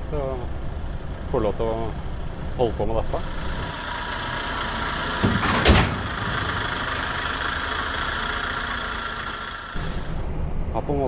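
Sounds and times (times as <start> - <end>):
truck diesel engine idling: 0.5 - 10.3
loud thump with rush: 5.2 - 6.7.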